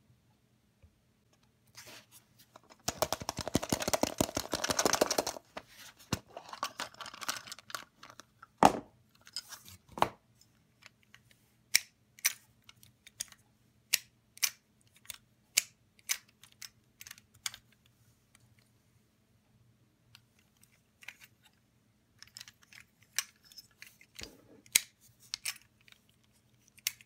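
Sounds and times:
plastic egg crackling and rattling: 2.5s - 8.5s
plastic toy clicks: 2.8s - 5.4s.

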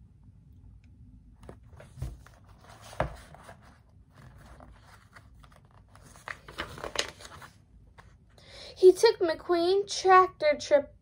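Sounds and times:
book pages rustling: 1.4s - 8.2s.

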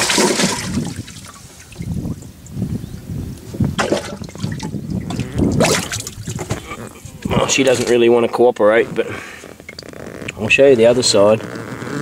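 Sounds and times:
fish thrashing in water: 0.0s - 2.3s, 3.8s - 8.0s
water sloshing and splashing: 0.0s - 2.3s, 3.8s - 8.0s.

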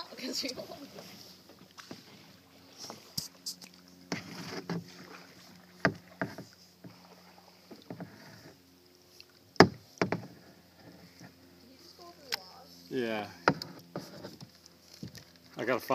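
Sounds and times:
water swishing around paddle: 0.0s - 15.9s
paddle knocking against hull: 4.1s - 8.6s, 9.6s - 11.4s, 13.4s - 15.3s.

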